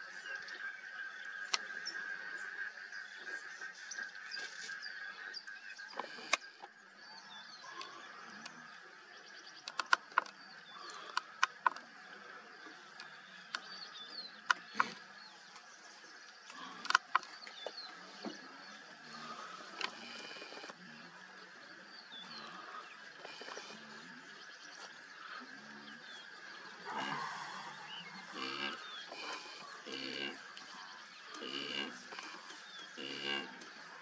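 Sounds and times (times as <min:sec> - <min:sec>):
insect drone: 0:00.0 - 0:34.0
small birds chirping: 0:00.0 - 0:34.0
sharp snaps and clicks: 0:09.6 - 0:10.4.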